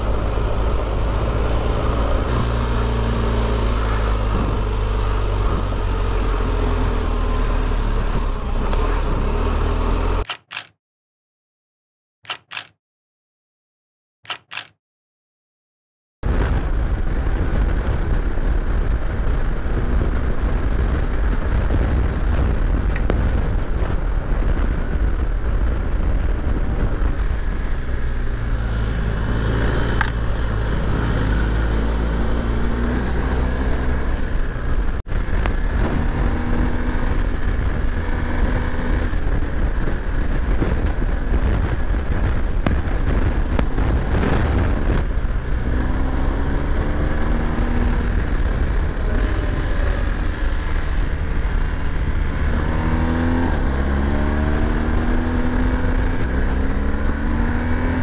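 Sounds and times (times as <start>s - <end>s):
motorcycle engine running: 0.0s - 10.2s, 16.3s - 58.0s
wind buffeting the microphone: 16.2s - 58.0s.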